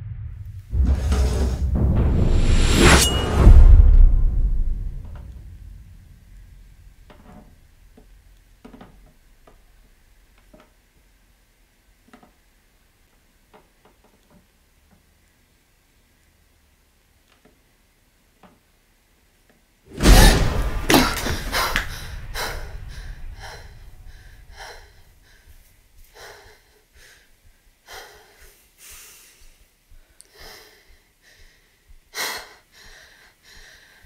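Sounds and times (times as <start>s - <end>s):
deep boom: 0.0s - 7.1s, 20.0s - 25.1s
woman breathing and gasping: 20.1s - 34.0s.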